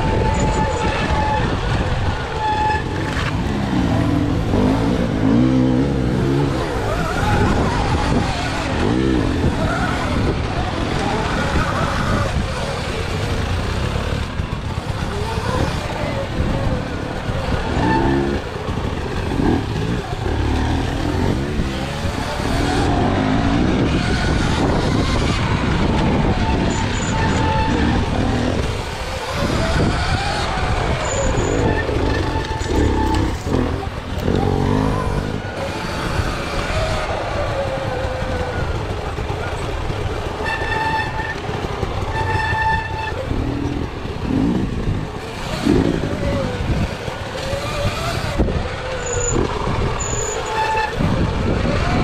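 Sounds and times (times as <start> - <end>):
dirt bike engine revving: 0.0 - 52.0.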